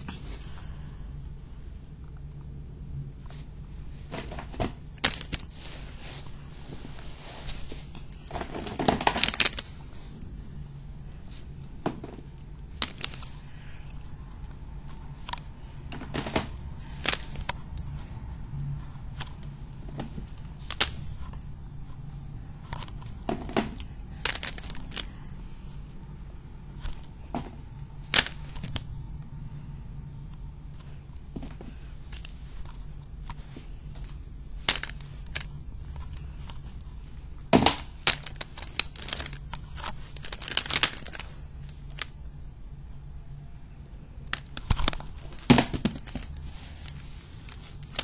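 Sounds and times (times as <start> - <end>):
steady low hum: 0.0 - 48.0
plastic figures clacking: 4.1 - 10.3, 11.3 - 18.1, 19.1 - 21.4, 22.0 - 25.9, 26.7 - 28.9, 30.7 - 42.4, 44.2 - 48.0.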